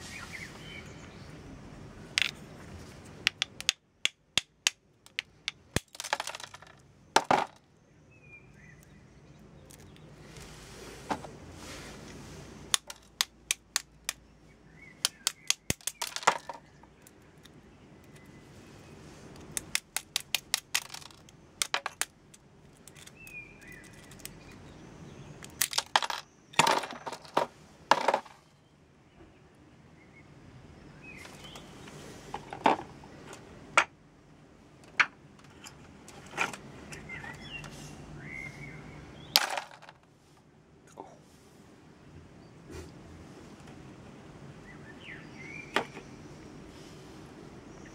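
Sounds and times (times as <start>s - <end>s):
small metal pieces clicking: 2.2s - 2.4s, 3.3s - 7.6s, 9.7s - 10.0s, 12.7s - 14.2s, 15.0s - 18.2s, 19.4s - 24.6s, 25.4s - 27.2s.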